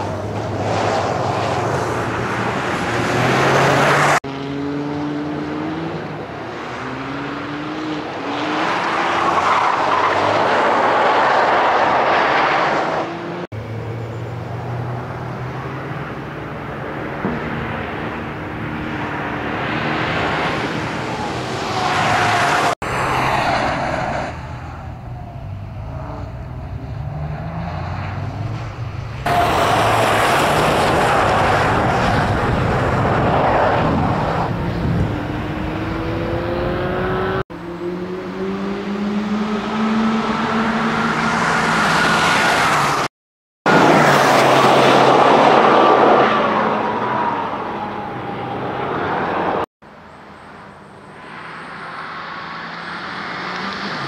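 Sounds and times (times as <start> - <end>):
car engine revving hard: 34.8 - 42.4.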